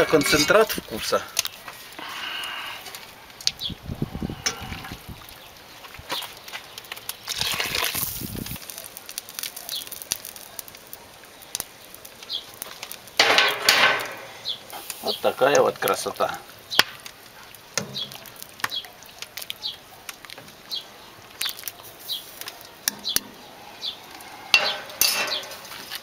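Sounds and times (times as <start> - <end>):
pan or ladle clatter: 0.0 - 0.8, 13.2 - 14.9, 24.5 - 26.0
liquid pouring and splashing: 4.5 - 11.0.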